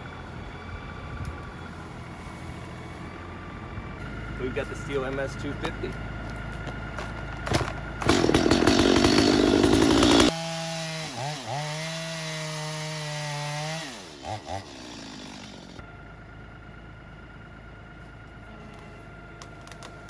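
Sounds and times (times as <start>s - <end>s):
chainsaw at full throttle: 8.0s - 15.8s.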